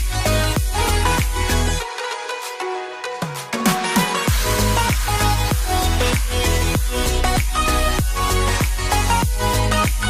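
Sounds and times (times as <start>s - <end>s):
bass and kick drum beat: 0.0s - 1.8s, 4.3s - 10.0s.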